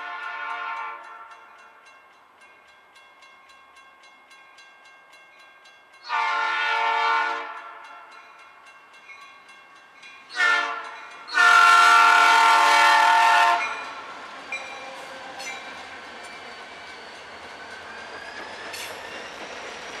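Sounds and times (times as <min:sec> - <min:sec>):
locomotive air horn blasts: 0:00.0 - 0:01.4, 0:06.0 - 0:08.1, 0:10.3 - 0:13.8
crossing bell dinging: 0:00.0 - 0:06.4, 0:07.4 - 0:12.2, 0:13.5 - 0:16.5
train rumbling past: 0:00.0 - 0:20.0.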